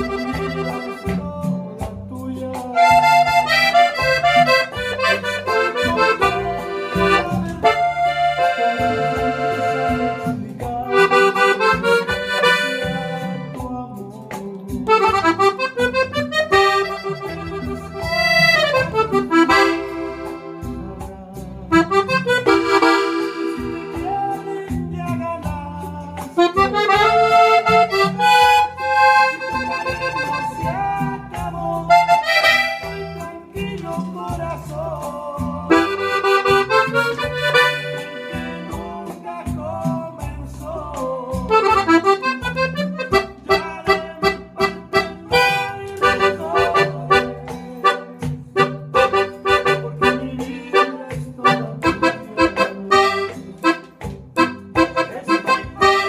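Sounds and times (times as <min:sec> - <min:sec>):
button accordion playing: 0:00.0 - 0:01.6, 0:02.8 - 0:13.7, 0:14.9 - 0:21.1, 0:21.7 - 0:24.9, 0:26.2 - 0:33.6, 0:35.7 - 0:39.2, 0:41.5 - 0:56.0.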